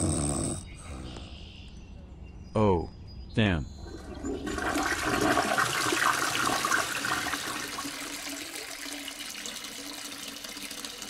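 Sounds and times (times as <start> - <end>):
toilet flushing: 3.8 - 11.0.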